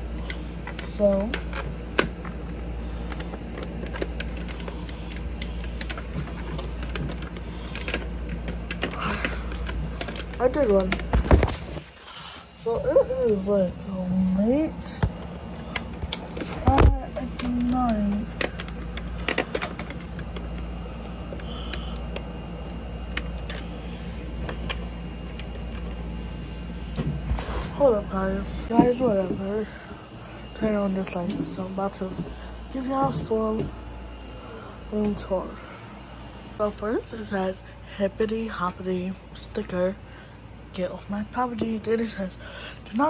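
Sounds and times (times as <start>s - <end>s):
steady low hum: 0.0s - 43.0s
phone handling clicks and rustles: 3.0s - 12.0s, 15.0s - 20.7s, 24.4s - 26.0s.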